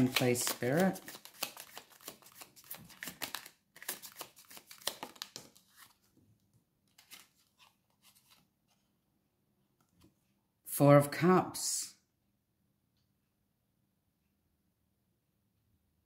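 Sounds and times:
cards being shuffled: 0.0s - 6.1s, 6.9s - 8.5s.

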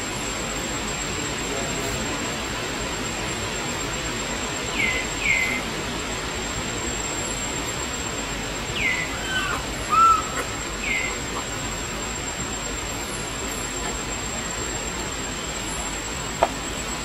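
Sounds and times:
baby monkey calling: 4.8s - 5.6s, 8.7s - 11.8s.

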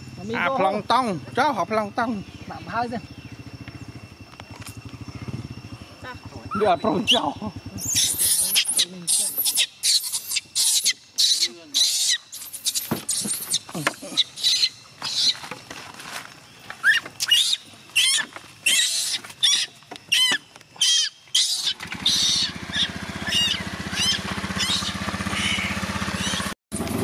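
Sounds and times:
scooter engine idling: 0.0s - 8.0s, 21.6s - 27.0s
baby monkey screaming: 6.5s - 15.5s, 16.8s - 26.6s.

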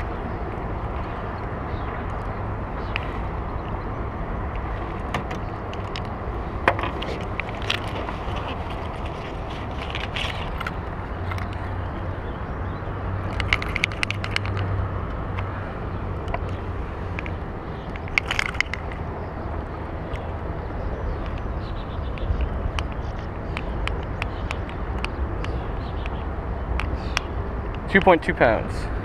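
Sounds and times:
metal clicks and rattles: 4.5s - 11.7s, 13.2s - 14.8s, 17.2s - 19.1s.

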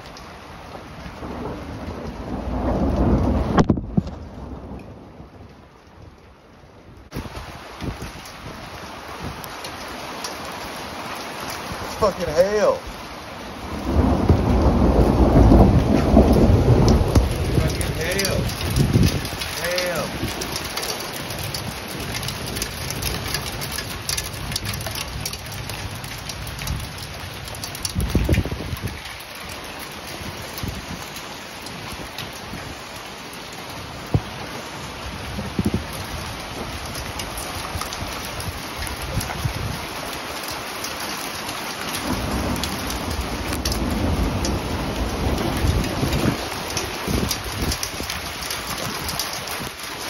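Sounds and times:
hailstones ticking: 0.0s - 5.0s, 7.1s - 50.0s
rain falling: 0.0s - 50.0s
low rumble of thunder: 0.7s - 6.2s, 13.5s - 29.2s, 34.0s - 40.1s, 41.9s - 49.8s.

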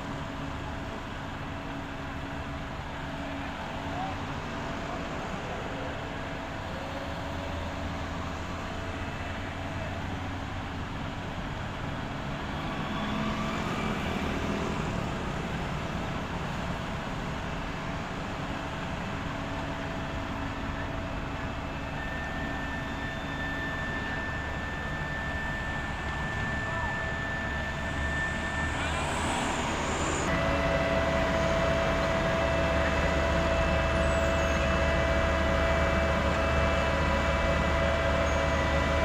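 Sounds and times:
diesel engines rumbling: 0.0s - 39.0s.

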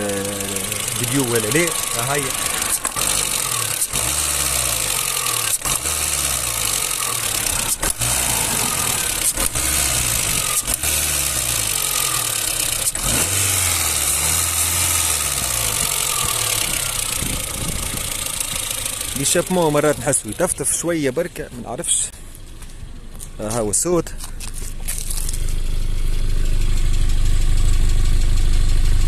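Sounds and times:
car engine revving: 0.0s - 22.1s.

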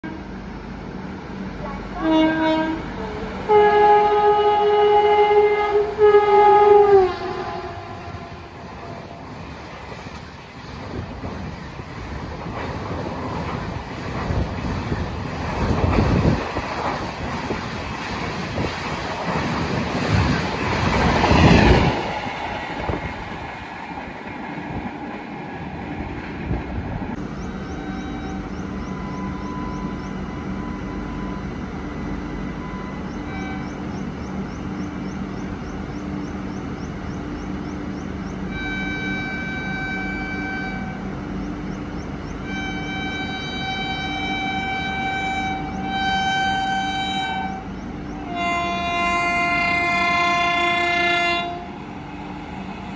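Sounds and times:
train horn: 0.0s - 0.4s, 1.6s - 9.2s, 27.6s - 31.5s, 32.5s - 33.8s, 38.5s - 41.1s, 42.4s - 51.8s
train coaches rushing past: 0.5s - 52.9s.

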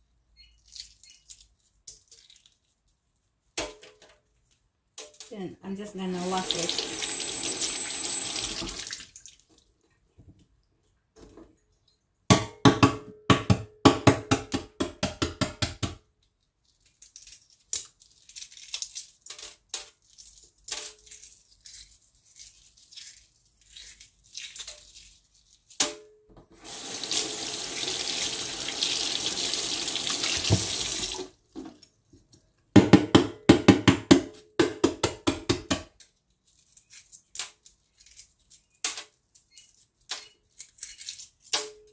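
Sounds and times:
faucet running: 6.2s - 9.1s, 26.6s - 31.3s.

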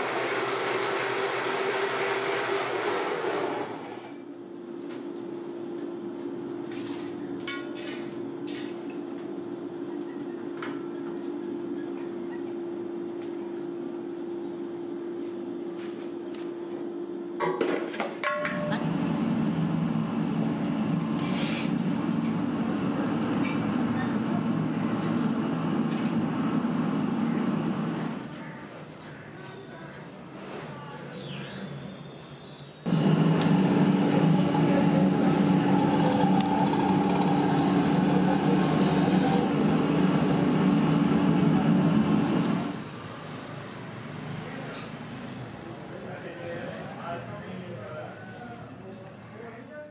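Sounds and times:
loud steady machine noise: 0.0s - 4.5s, 18.4s - 28.3s, 32.9s - 43.4s
workshop machine hum: 0.0s - 29.4s, 31.6s - 46.3s.

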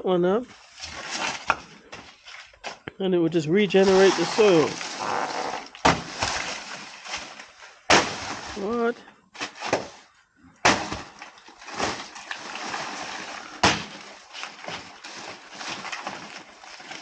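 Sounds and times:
dry leaves crackling and rustling: 11.5s - 17.0s.

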